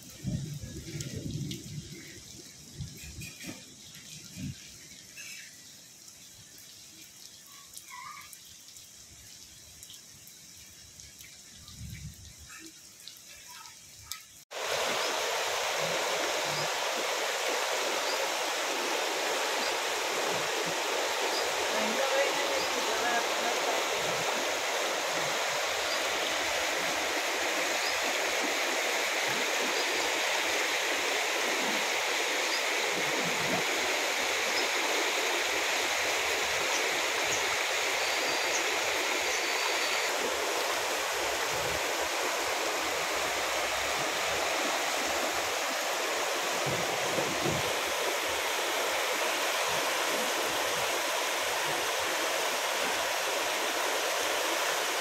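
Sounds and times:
floodwater rushing: 0:00.0 - 0:05.6, 0:12.4 - 0:55.0.

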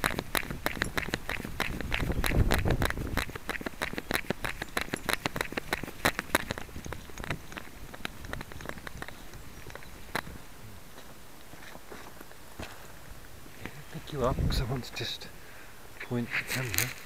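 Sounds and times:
dog claws tapping: 0:00.0 - 0:10.3
camera jostling rumble: 0:00.0 - 0:10.4, 0:16.3 - 0:17.0.

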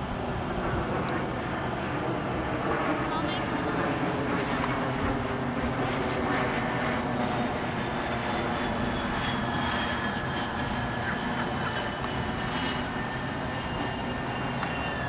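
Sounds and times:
distant engine drone: 0:00.0 - 0:15.0.

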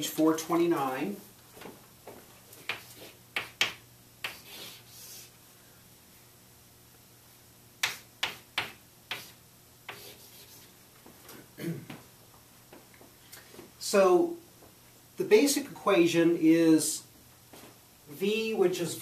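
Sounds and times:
chalk tapping on blackboard: 0:02.6 - 0:04.8, 0:07.8 - 0:10.6
chalk scratching on blackboard: 0:02.6 - 0:05.3, 0:07.8 - 0:10.7.

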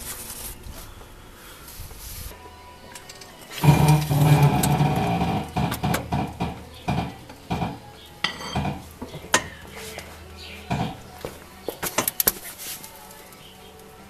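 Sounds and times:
metallic clinks and clanks: 0:02.9 - 0:09.8.

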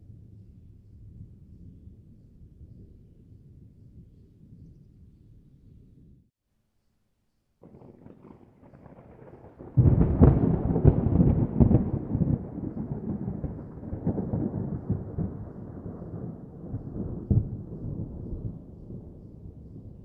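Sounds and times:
thunder cracking and rumbling: 0:07.6 - 0:20.0.

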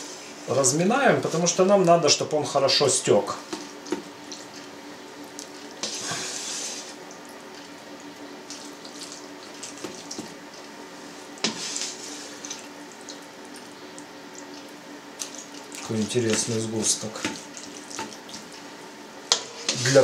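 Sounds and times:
whey slopping and splashing: 0:05.4 - 0:18.8.

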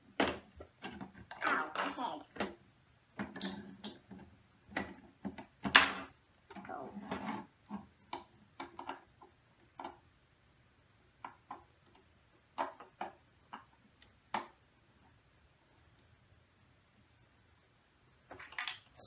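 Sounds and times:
plastic pieces clicking: 0:18.3 - 0:18.9.

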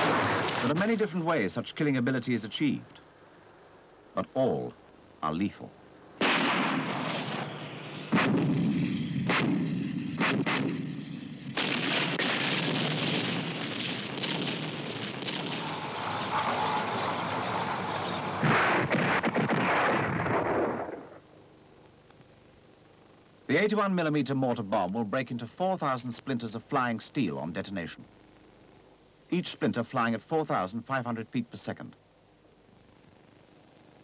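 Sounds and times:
shells exploding: 0:00.0 - 0:01.2, 0:06.2 - 0:21.2
continuous rumble: 0:00.0 - 0:34.0.

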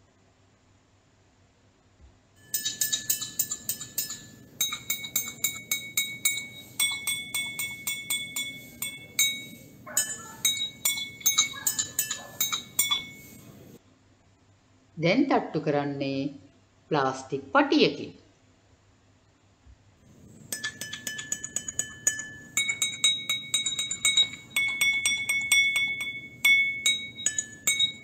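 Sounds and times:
spoon tapping water glasses: 0:02.4 - 0:13.8, 0:20.2 - 0:28.0.

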